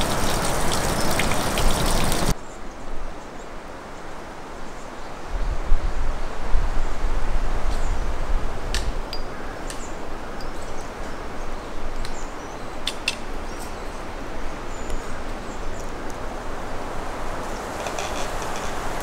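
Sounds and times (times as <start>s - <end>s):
forest rushing hiss: 0.0s - 10.3s, 10.9s - 19.0s
wind rumbling on microphone: 5.2s - 12.8s.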